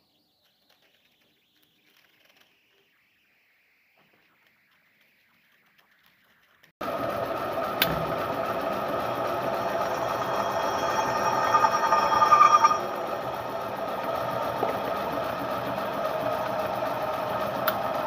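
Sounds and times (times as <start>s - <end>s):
pillar drill cutting steel: 7.8s - 17.8s.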